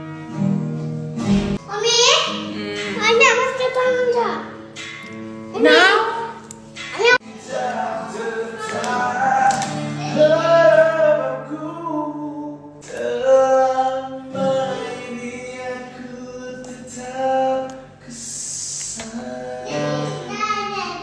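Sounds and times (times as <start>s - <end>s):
low musical accompaniment: 0.0s - 18.4s
person singing long notes: 2.4s - 3.2s, 7.3s - 20.2s.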